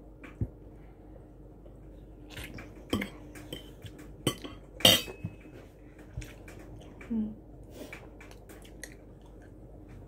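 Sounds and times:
cutlery clinking on ceramic plates: 2.9s - 5.5s.

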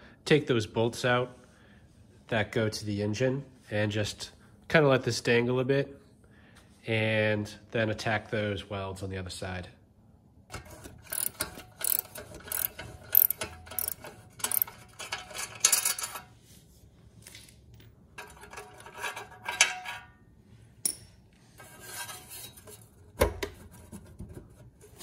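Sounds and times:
socket ratchet clicking: 11.0s - 15.2s.

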